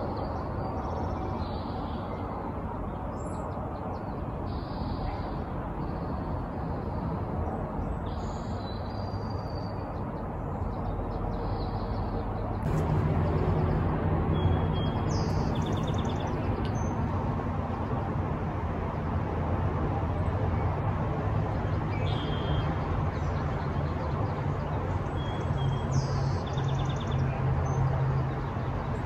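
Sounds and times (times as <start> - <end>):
rushing background noise: 0.0 - 25.1
low hum: 11.9 - 19.2.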